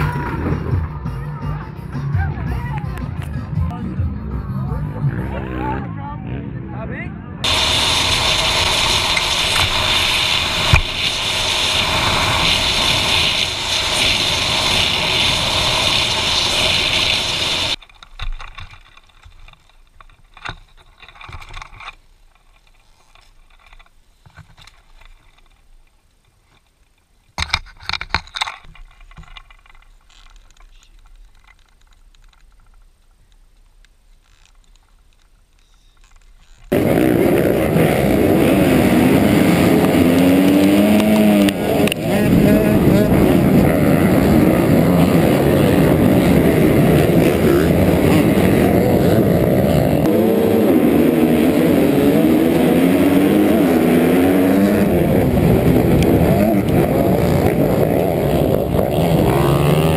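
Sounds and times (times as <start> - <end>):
wind rushing over camera: 7.4 - 17.8, 36.7 - 57.8.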